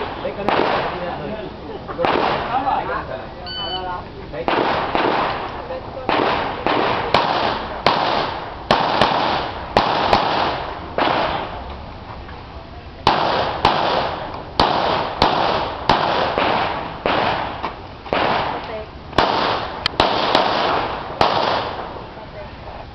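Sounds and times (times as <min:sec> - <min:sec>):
pistol shots: 0:00.0 - 0:01.2, 0:02.0 - 0:02.7, 0:04.4 - 0:11.6, 0:13.0 - 0:22.0.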